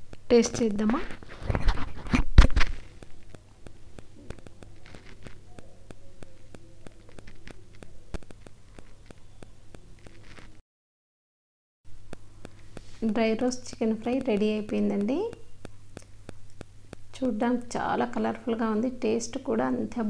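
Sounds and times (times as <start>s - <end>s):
hot pan crackling and ticking: 0.0s - 10.6s, 11.9s - 20.0s.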